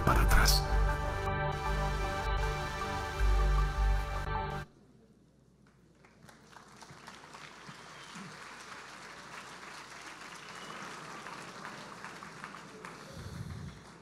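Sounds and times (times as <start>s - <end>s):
audience applauding: 5.9s - 14.0s.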